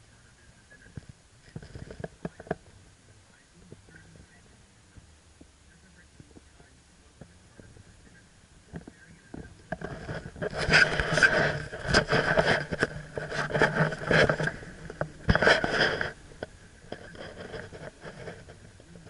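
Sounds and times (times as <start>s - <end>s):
camera handling rubbing and knocking: 1.5s - 2.7s, 8.7s - 19.0s.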